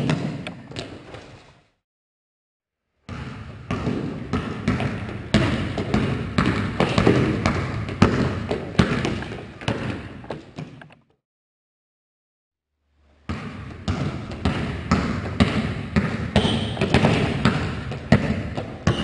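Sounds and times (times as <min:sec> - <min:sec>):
basketball bouncing on wooden floor: 0:00.0 - 0:01.3, 0:03.1 - 0:11.0, 0:13.3 - 0:19.0.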